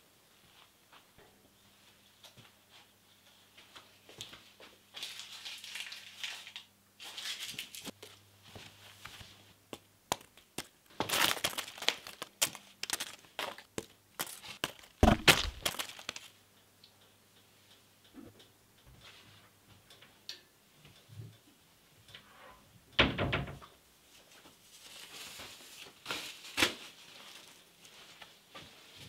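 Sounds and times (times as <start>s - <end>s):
paper crinkling: 10.2s - 16.3s, 24.6s - 28.2s
dull thump: 15.0s - 15.6s.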